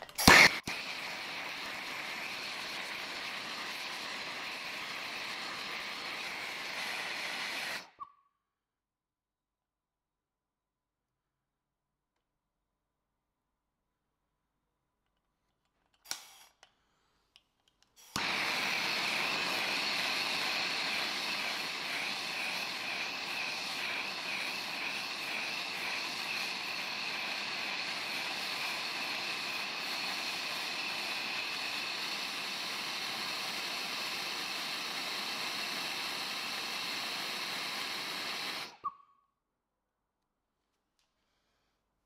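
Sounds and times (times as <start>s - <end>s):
gas torch flame hissing: 0.0s - 8.0s, 16.1s - 16.7s, 18.0s - 38.9s.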